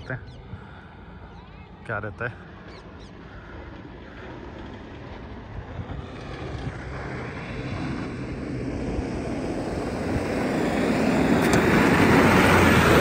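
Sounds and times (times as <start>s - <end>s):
car engine under load: 4.6s - 13.0s.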